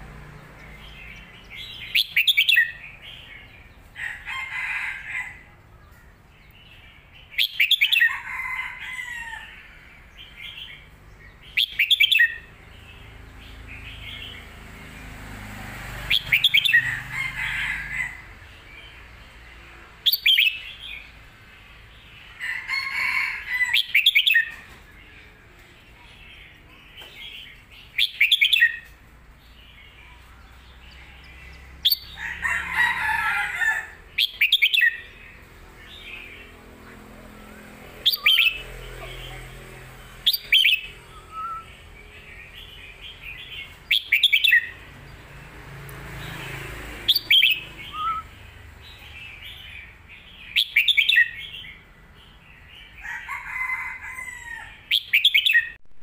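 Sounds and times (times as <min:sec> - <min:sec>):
bird singing song phrases: 0:00.0 - 0:04.0, 0:05.5 - 0:08.3, 0:09.0 - 0:15.2, 0:16.1 - 0:17.1, 0:20.0 - 0:22.4, 0:23.6 - 0:32.4, 0:34.1 - 0:45.5, 0:46.2 - 0:53.2, 0:54.8 - 0:55.8.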